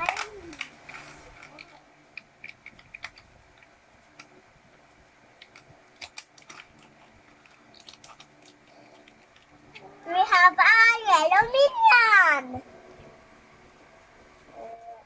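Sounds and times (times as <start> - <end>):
toy packet crinkling: 0.0 - 3.7, 5.4 - 9.8
plastic pieces clicking: 0.0 - 4.3, 5.4 - 9.8.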